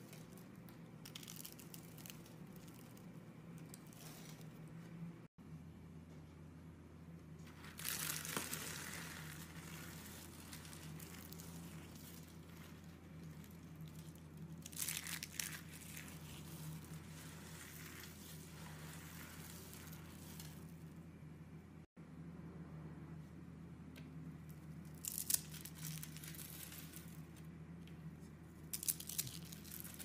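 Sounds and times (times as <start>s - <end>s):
soap shavings crunching: 0.0s - 4.5s, 7.5s - 20.9s, 24.9s - 27.3s, 28.7s - 30.0s
steady low hum: 0.0s - 30.0s.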